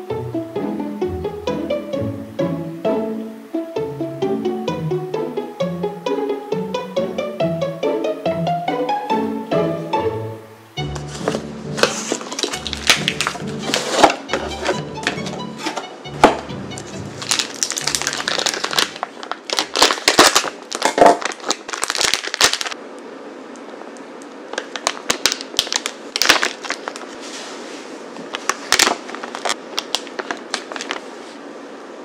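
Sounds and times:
plastic wrapper crinkling: 0:11.1 - 0:14.8, 0:16.8 - 0:22.8, 0:24.5 - 0:27.2, 0:28.2 - 0:31.4.

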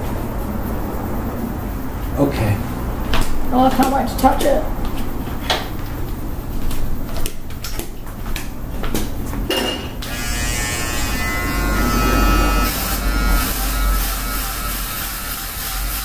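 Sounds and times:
electric shaver buzzing: 0:10.0 - 0:16.0.

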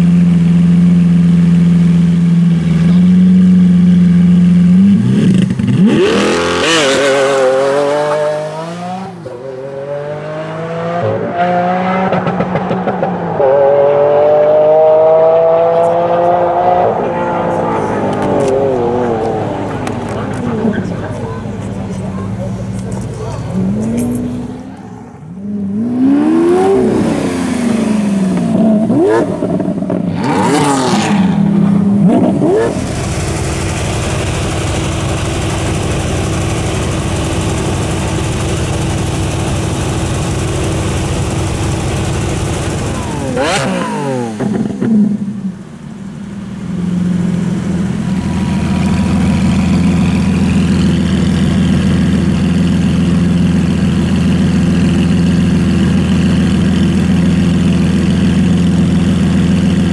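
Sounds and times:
car engine idling: 0:00.0 - 0:09.5, 0:15.4 - 0:59.9
sports car engine revving: 0:00.0 - 0:59.9.

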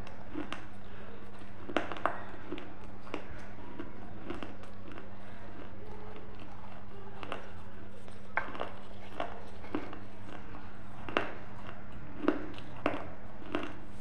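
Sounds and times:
brittle food crunching: 0:00.0 - 0:14.0
steady low hum: 0:00.0 - 0:14.0.

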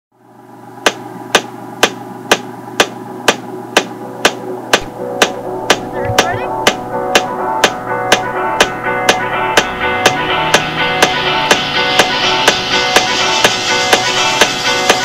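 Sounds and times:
steady low hum: 0:00.2 - 0:15.0
percussive clicking beat: 0:00.9 - 0:14.0
sustained chord tones: 0:03.5 - 0:15.0.

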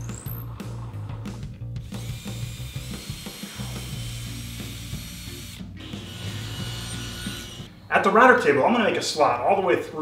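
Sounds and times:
cordless drill boring into wood: 0:01.8 - 0:07.7.

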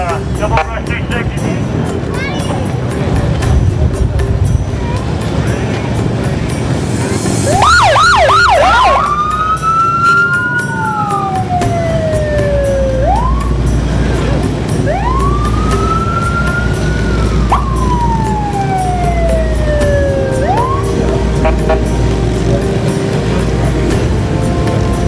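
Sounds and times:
motorcycle engine rumble: 0:00.0 - 0:25.0
police siren yelps and wail: 0:07.4 - 0:13.8, 0:14.7 - 0:21.8.

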